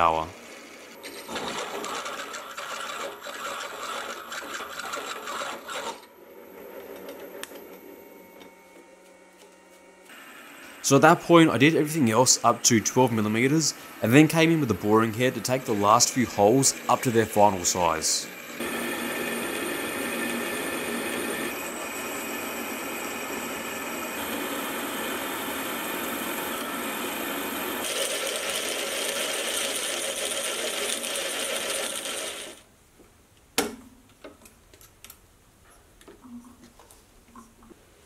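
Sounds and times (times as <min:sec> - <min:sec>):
milling machine drilling steel: 0:10.6 - 0:28.7.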